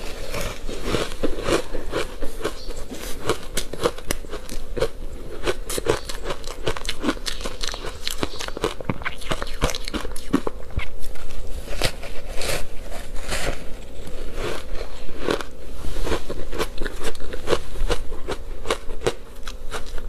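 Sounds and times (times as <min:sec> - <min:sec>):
chewing crunchy ice: 0:00.0 - 0:20.0.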